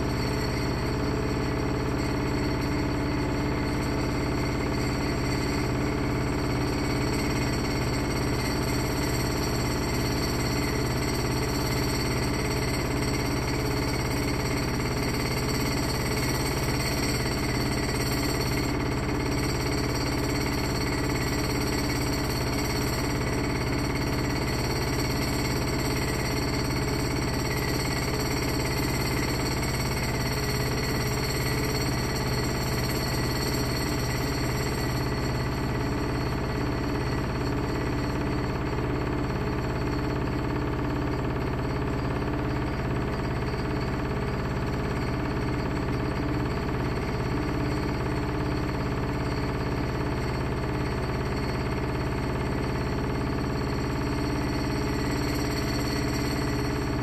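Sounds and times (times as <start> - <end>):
washer drum spinning: 0.0 - 54.1.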